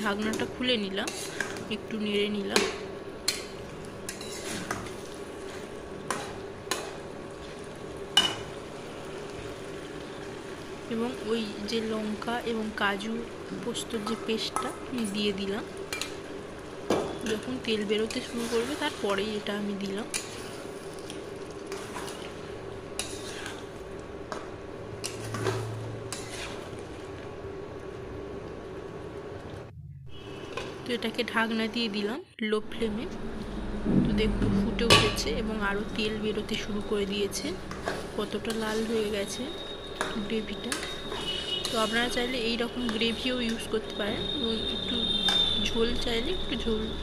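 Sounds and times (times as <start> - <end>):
soft sizzle: 0.0 - 32.1, 34.6 - 47.0
spatula stirring in pan: 0.1 - 1.7, 2.6 - 10.8, 15.8 - 27.2, 37.7 - 44.4
spatula scraping a pan: 1.0 - 1.6, 4.1 - 6.9, 18.0 - 19.1, 20.1 - 22.3, 23.0 - 23.7, 25.0 - 26.8, 37.7 - 42.3
steady low hum: 32.6 - 38.6.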